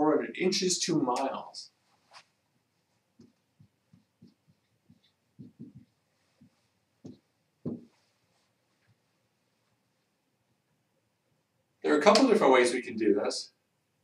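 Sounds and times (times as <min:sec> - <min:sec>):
marker tapping on whiteboard: 0:03.2 - 0:07.9.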